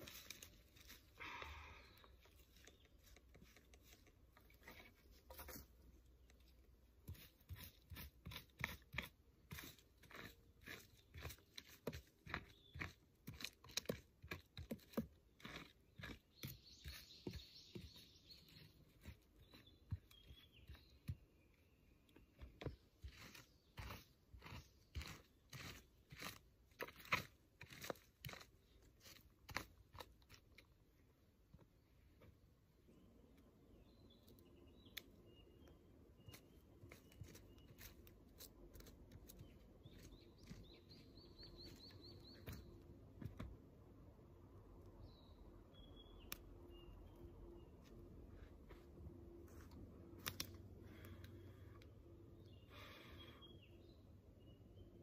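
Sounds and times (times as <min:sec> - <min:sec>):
blade digging into soil: 0:06.2 - 0:21.2, 0:22.4 - 0:30.7
bird chirping: 0:16.0 - 0:25.8, 0:32.9 - 0:43.0, 0:44.8 - 0:48.5, 0:50.4 - 0:55.0.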